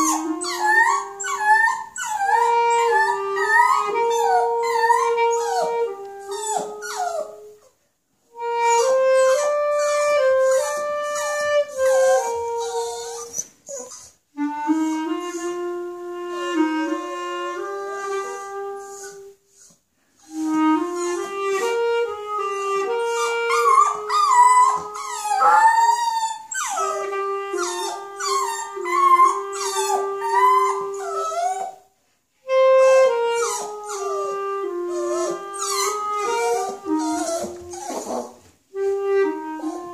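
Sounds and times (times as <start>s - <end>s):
clarinet playing held notes: 0.0s - 7.6s, 8.3s - 13.8s, 14.4s - 19.4s, 20.2s - 31.8s, 32.4s - 39.9s
dog howling: 23.2s - 27.0s, 34.9s - 38.4s.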